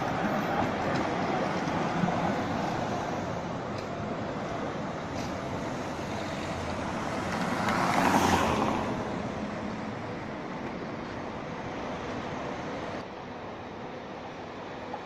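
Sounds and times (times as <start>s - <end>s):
city street traffic: 0.0s - 15.0s
vehicle passing close by: 6.0s - 9.7s.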